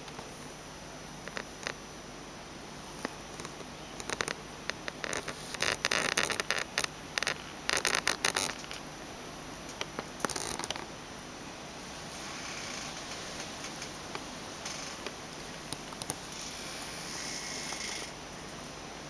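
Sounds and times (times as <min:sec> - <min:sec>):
faint hiss: 0:00.0 - 0:19.0
rustling and scratching clicks: 0:03.0 - 0:08.8, 0:09.7 - 0:10.9.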